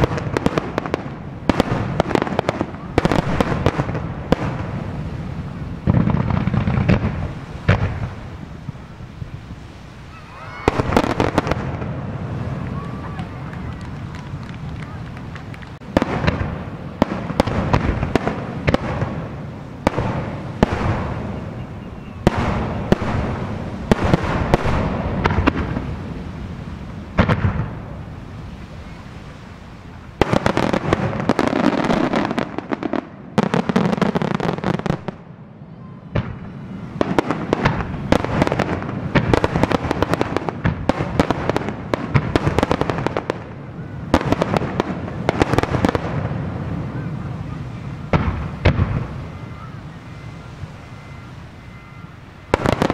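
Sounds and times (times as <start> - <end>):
fireworks bangs and crackling: 0.0 - 52.9.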